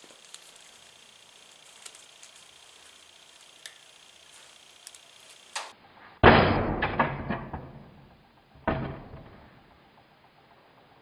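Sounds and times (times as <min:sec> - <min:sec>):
wire clicking while handled: 0:01.5 - 0:05.7.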